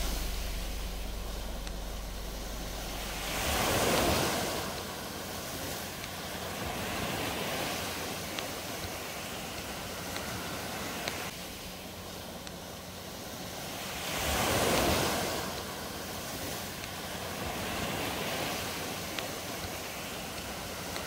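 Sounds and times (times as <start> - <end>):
ocean surf breaking on beach: 0.0 - 21.0.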